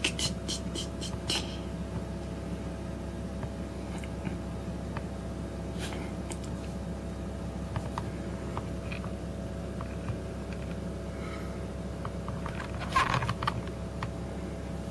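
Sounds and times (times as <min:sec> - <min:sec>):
low microphone hum: 0:00.0 - 0:14.9
phone handling clicks and rustling: 0:07.7 - 0:10.8, 0:12.0 - 0:14.2.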